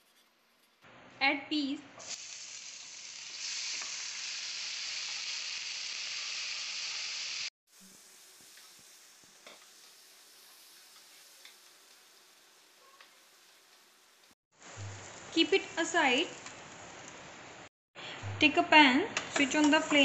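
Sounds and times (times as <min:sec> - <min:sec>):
peas sizzling in oil: 0:02.0 - 0:15.3.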